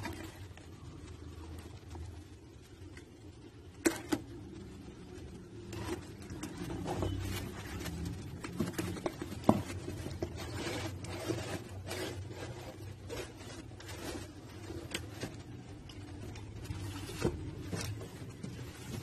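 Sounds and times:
cardboard scraping and rubbing: 5.6s - 19.0s.

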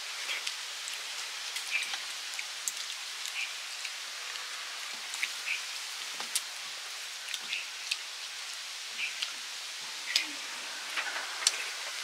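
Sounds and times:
steady hiss: 0.0s - 12.0s
chewing: 0.2s - 5.6s, 7.2s - 8.1s.

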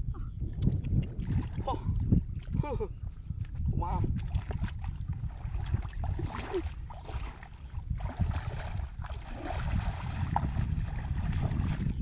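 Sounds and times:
wind noise on microphone: 0.0s - 12.0s
bare feet splashing in water: 3.3s - 12.0s.

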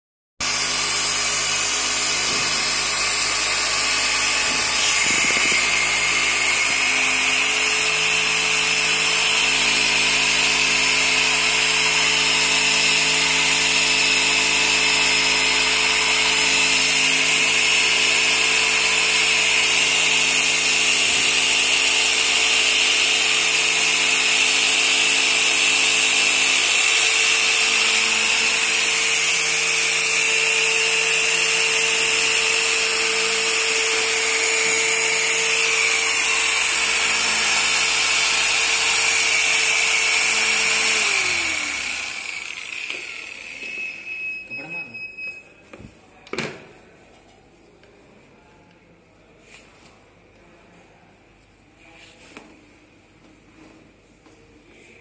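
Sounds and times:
electric polisher motor whine: 0.4s - 12.8s, 13.6s - 44.9s.

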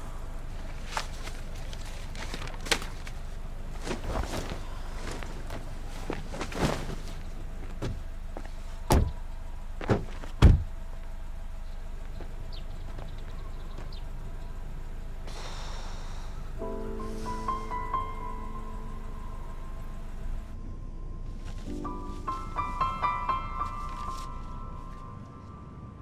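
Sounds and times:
car door knocks and thumps: 7.8s - 8.0s, 8.9s - 9.2s, 9.8s - 10.7s.

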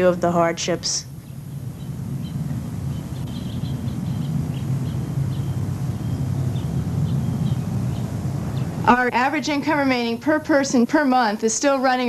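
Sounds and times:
high bird chirps: 1.2s - 8.7s.

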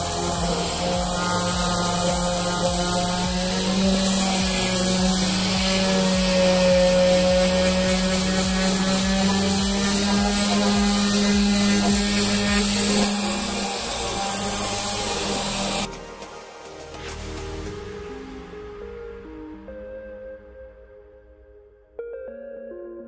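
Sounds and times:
orbital sander sanding wood: 0.0s - 17.2s.

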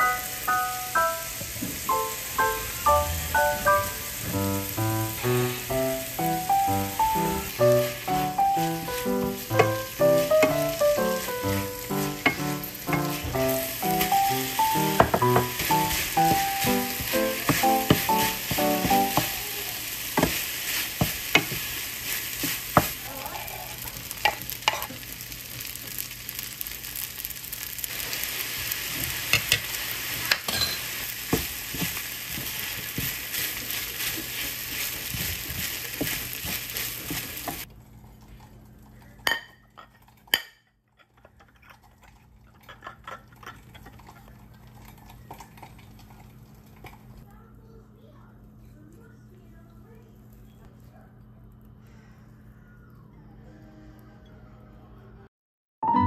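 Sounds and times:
food sizzling in a frying pan: 0.0s - 37.7s
spatula tapping pan: 6.3s - 19.4s, 20.1s - 21.8s, 22.4s - 23.0s
wooden spatula scraping pan: 20.1s - 23.0s, 31.4s - 37.6s.

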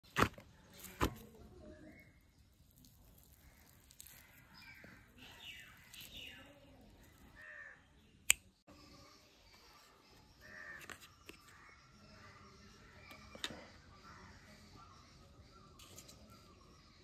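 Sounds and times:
crows cawing: 7.4s - 7.8s, 10.4s - 10.8s.

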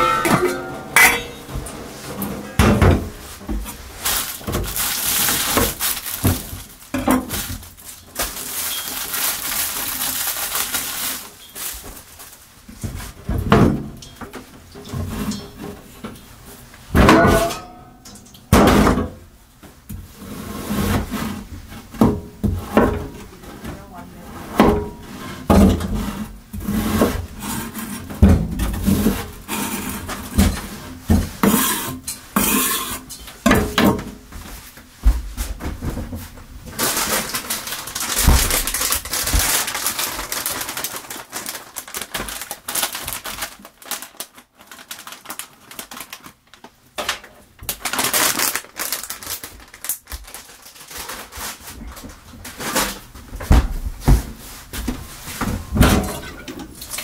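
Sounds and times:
dishes and utensils clattering: 0.0s - 4.8s, 13.3s - 16.1s, 16.9s - 19.0s, 31.4s - 34.1s, 55.6s - 57.0s.

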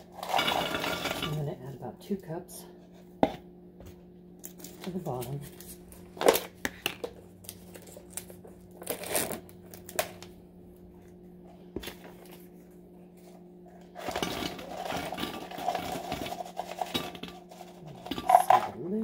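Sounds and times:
small cookies rattling into glass dish: 0.0s - 1.4s, 14.0s - 19.0s
steady low hum: 0.0s - 19.0s.

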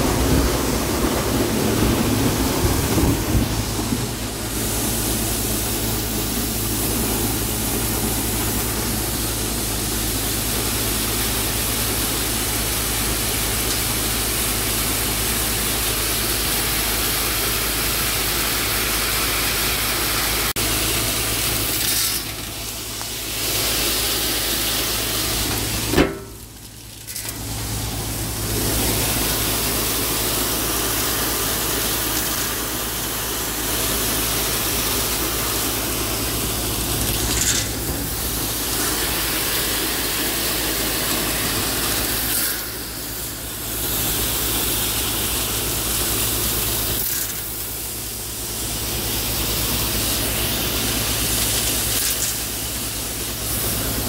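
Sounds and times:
low machine hum: 0.0s - 17.5s
grain pouring into metal bin: 0.0s - 54.0s.

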